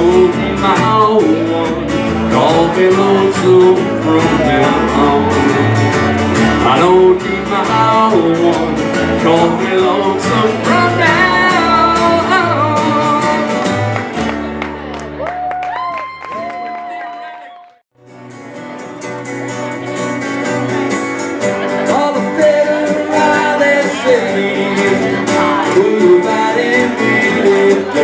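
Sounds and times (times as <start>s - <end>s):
person singing: 0.0s - 14.1s, 21.6s - 28.0s
acoustic guitars strumming: 0.0s - 15.2s, 18.0s - 28.0s.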